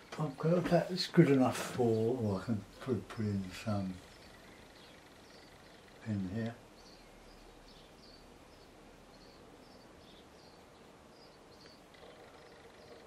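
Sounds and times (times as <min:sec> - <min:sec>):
small bird chirping: 0:00.0 - 0:13.0.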